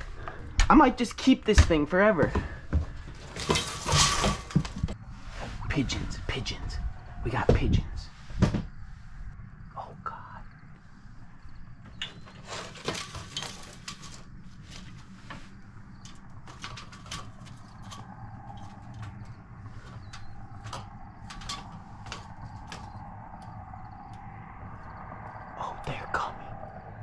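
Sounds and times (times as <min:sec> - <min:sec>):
window blind slats clicking and rattling: 0:03.2 - 0:04.8, 0:12.0 - 0:23.0.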